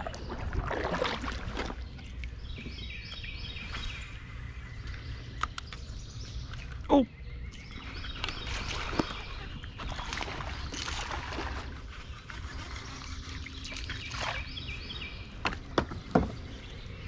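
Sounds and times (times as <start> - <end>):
river water splashing: 0.0 - 2.5, 7.8 - 15.2.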